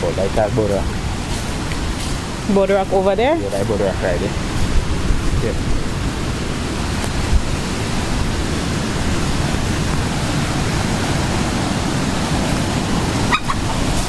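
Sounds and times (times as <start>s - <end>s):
wind buffeting microphone: 0.0s - 14.0s
surf breaking on rocks: 0.3s - 14.0s.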